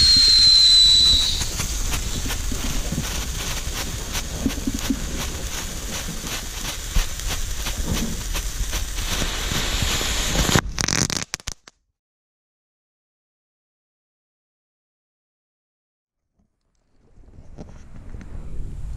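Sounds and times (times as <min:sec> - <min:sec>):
fireworks crackling and popping: 0:00.0 - 0:11.7
fireworks hissing: 0:00.0 - 0:11.7.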